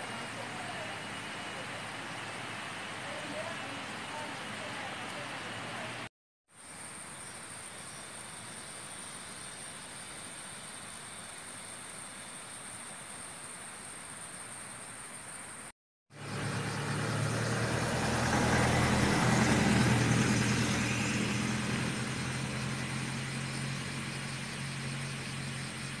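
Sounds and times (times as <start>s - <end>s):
vehicle engine hum passing: 0.0s - 6.1s, 16.1s - 26.0s.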